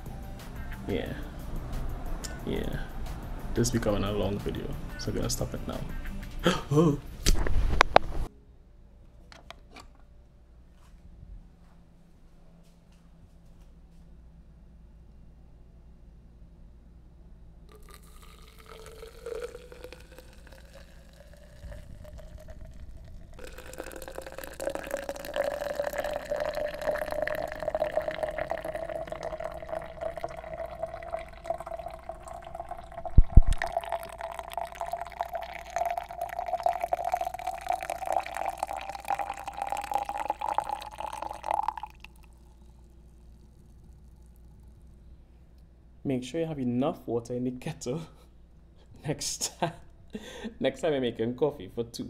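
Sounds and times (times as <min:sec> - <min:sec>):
water pouring into glass: 0:17.7 - 0:44.9.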